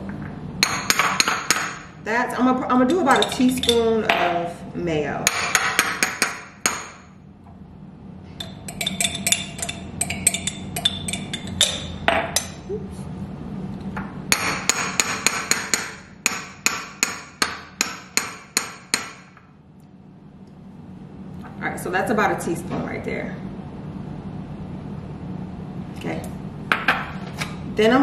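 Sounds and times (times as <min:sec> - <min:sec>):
metal spoon clinking on glass bowl: 0:08.4 - 0:12.6.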